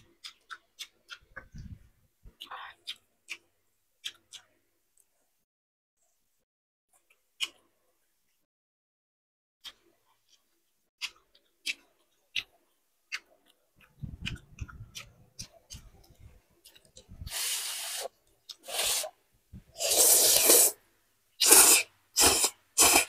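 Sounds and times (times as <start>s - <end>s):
chewing and mouth smacks: 0.0s - 5.1s, 9.6s - 17.3s
person slurping noodles: 17.2s - 20.8s, 21.4s - 23.0s.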